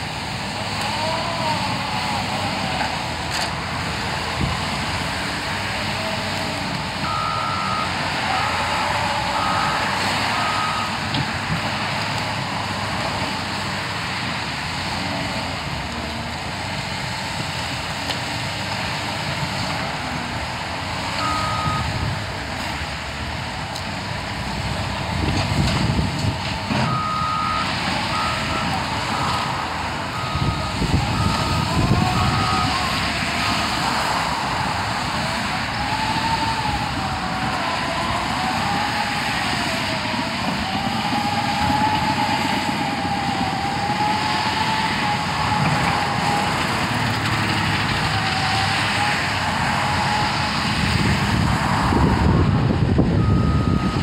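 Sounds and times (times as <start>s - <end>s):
diesel engines under load: 0.0s - 54.0s
backup alarm beeping: 7.0s - 8.6s, 21.2s - 21.9s, 30.2s - 32.7s.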